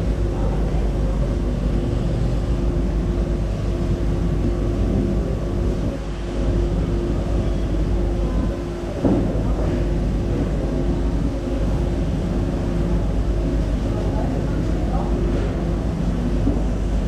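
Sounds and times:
machinery drone: 0.0 - 17.0.

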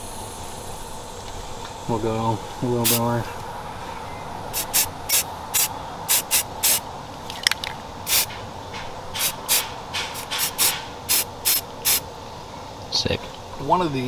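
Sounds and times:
spray can spritzes: 2.8 - 3.1, 4.6 - 6.8, 8.1 - 8.3, 9.2 - 12.0.

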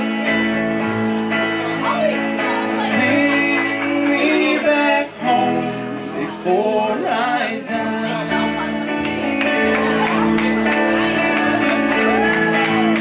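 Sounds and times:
electric guitar: 0.0 - 13.0
man singing: 1.7 - 9.2.

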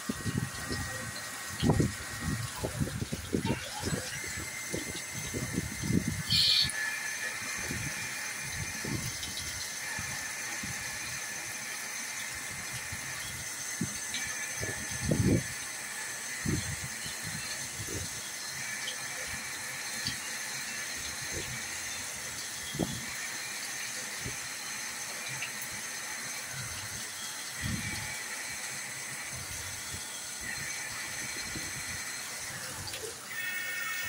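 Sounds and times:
coolant hissing and splashing: 0.0 - 34.0
high squeak: 6.3 - 6.8.

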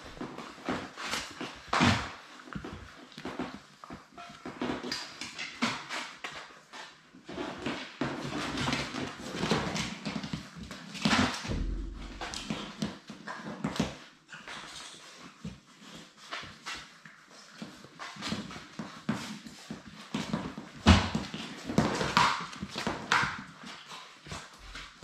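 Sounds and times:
puppies scrabbling on wooden floor: 0.1 - 25.0
bumps on wooden floor: 11.5 - 12.9.

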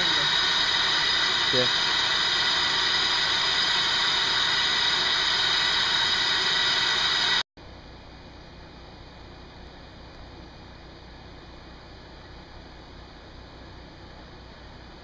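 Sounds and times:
loud hissing: 0.0 - 7.4.

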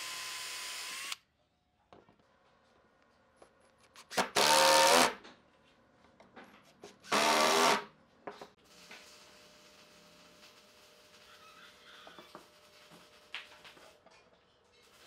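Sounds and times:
cordless drill motor whine: 0.0 - 1.2.

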